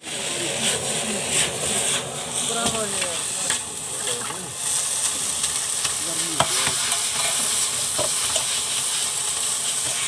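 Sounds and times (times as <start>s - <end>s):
noodles sizzling in a wok: 0.0s - 10.0s.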